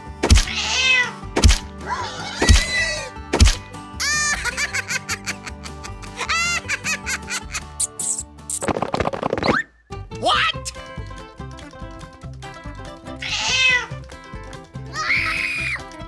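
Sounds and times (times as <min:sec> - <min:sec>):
cartoon music with thudding beat: 0:00.0 - 0:16.0
high cartoon voice laughing: 0:04.0 - 0:08.2.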